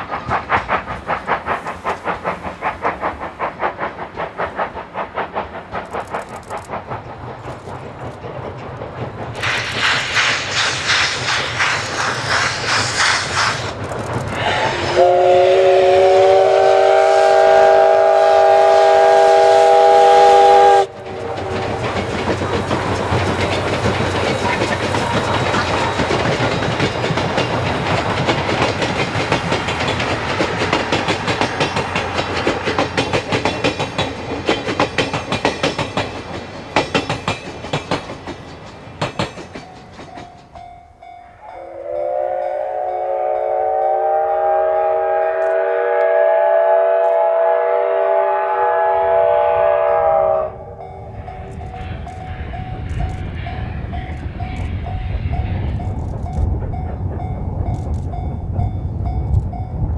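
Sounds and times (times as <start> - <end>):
train wheels clattering on rails: 0.0 - 43.2, 50.0 - 59.9
steam locomotive whistle: 14.4 - 22.0, 41.3 - 50.9.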